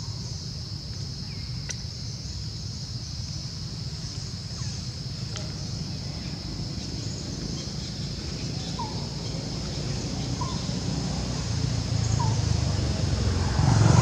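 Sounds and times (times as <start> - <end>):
vehicle engine approaching: 8.1 - 14.0.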